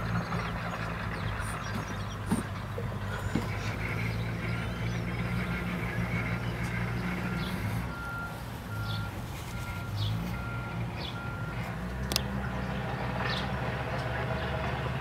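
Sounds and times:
low engine rumble: 0.0 - 15.0
vehicle backup alarm beeping: 5.6 - 11.7.

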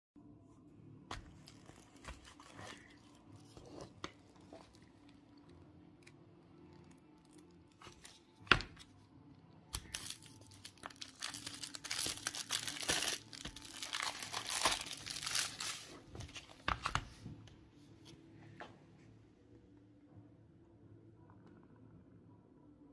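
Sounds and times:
plastic wrap crinkling and tearing: 1.2 - 5.5, 9.7 - 17.0.

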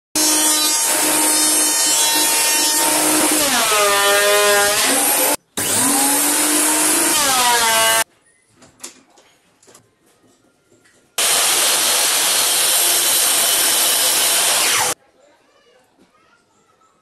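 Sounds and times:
thickness planer running: 0.2 - 8.0, 11.2 - 15.0.

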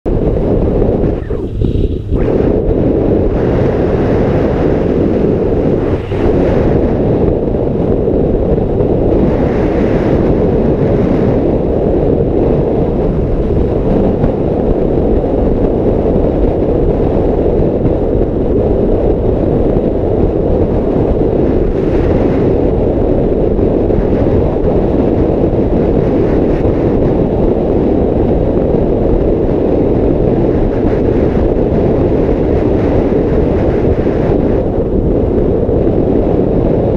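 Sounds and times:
wind buffeting microphone: 0.0 - 36.9
motorcycle engine: 0.1 - 9.2
road noise: 0.1 - 27.9.

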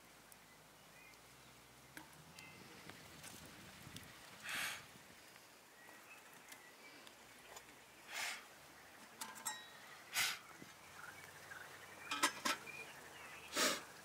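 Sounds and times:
embers crackling: 0.0 - 14.0
person blowing on embers: 4.4 - 4.9, 13.5 - 13.9.

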